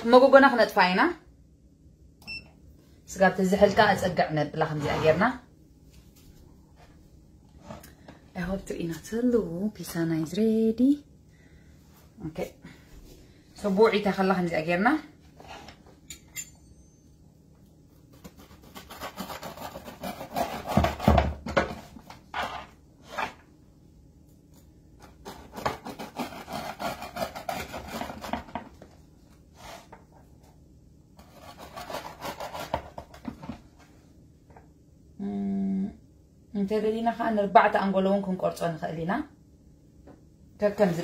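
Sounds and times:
pizza cutter scraping crust: 18.1s - 21.1s, 25.2s - 28.6s, 31.2s - 33.2s.

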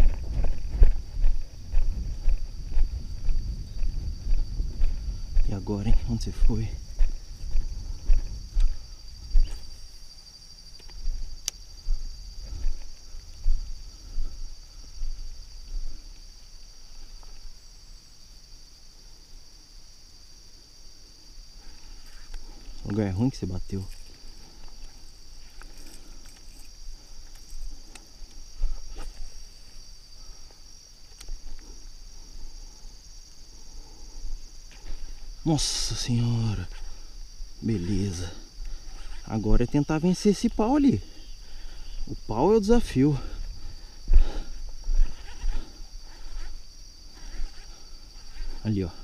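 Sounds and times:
low bumps and rumble: 0.0s - 9.5s
crickets trilling: 0.0s - 49.0s
insects chirring: 0.0s - 49.0s.

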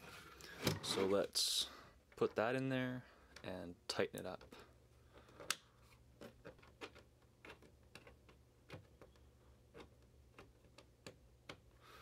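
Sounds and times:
small plastic clicks and taps: 5.2s - 11.7s.

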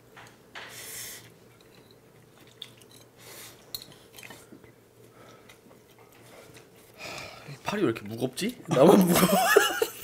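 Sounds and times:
chewing: 1.7s - 7.0s.

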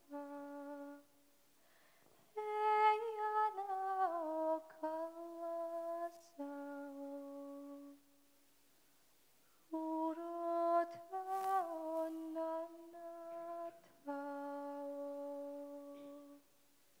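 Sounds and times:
woman singing lullaby: 0.0s - 1.1s, 2.4s - 8.0s, 9.7s - 16.4s.

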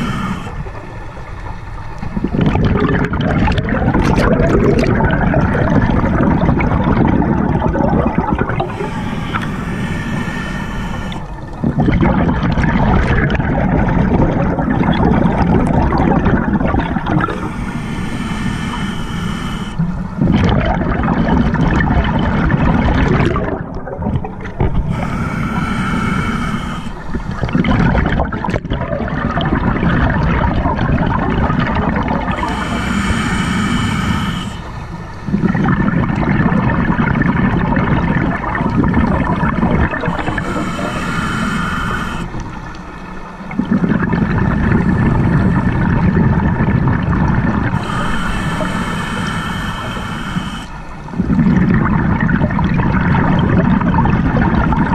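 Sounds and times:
hissing regulator inhales: 0.0s - 1.2s, 8.2s - 11.5s, 15.3s - 20.3s, 24.4s - 27.5s, 32.3s - 35.5s, 39.8s - 43.9s, 44.5s - 45.9s, 47.6s - 51.6s
exhaled bubbles rumbling: 0.0s - 54.9s.

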